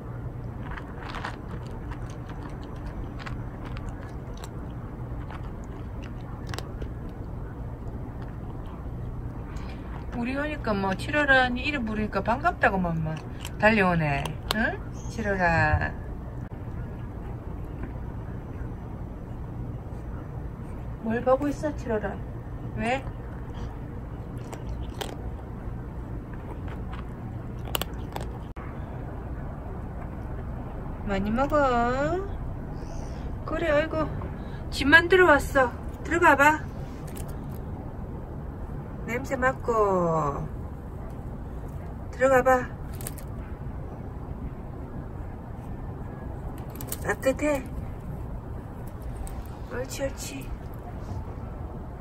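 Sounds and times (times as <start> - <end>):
cat crunching dry kibble: 0.0 - 11.2, 12.0 - 15.0, 22.4 - 28.6, 35.8 - 38.0, 42.7 - 43.4, 45.6 - 50.8
steady low hum: 0.0 - 52.0.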